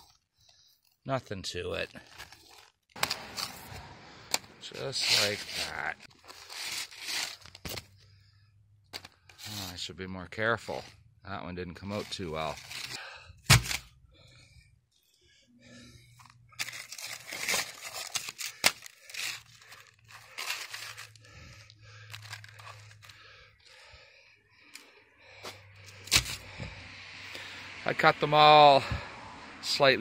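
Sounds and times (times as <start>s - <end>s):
roof shingles tearing and crunching: 16.6s - 21.4s, 22.1s - 23.3s, 26.0s - 26.4s.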